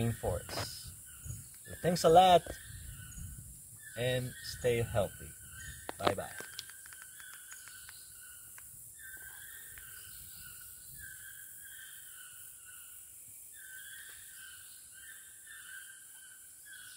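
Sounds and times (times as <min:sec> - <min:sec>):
steady high hiss: 0:00.0 - 0:14.8.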